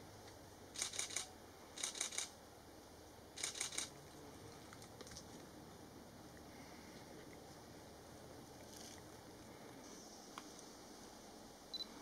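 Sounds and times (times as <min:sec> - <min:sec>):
camera shutter bursts: 0:00.8 - 0:02.3, 0:03.4 - 0:03.9.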